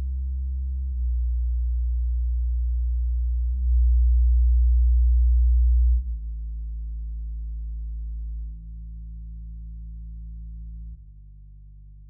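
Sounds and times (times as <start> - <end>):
low bass test tone: 0.0 - 12.0.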